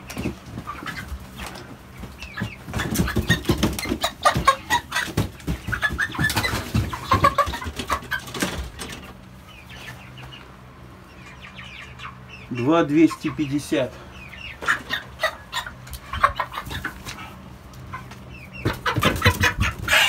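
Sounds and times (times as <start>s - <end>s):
scuffling and clatter: 0.0s - 9.2s
chicken calling: 0.0s - 20.0s.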